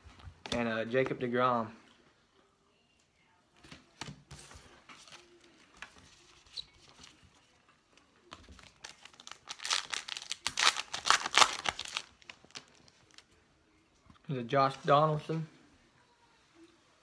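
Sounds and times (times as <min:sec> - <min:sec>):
card pack wrapper tearing: 0:08.6 - 0:13.2
wrapper crinkling: 0:08.6 - 0:13.3.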